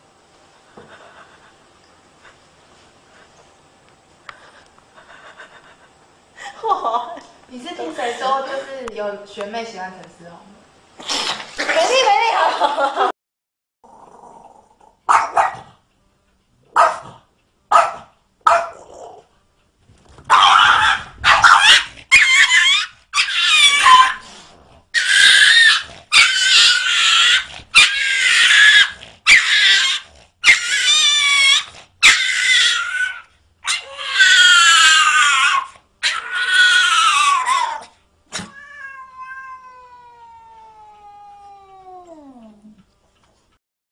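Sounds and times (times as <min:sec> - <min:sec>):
cat yowling: 0:20.3 - 0:24.2, 0:25.0 - 0:42.6.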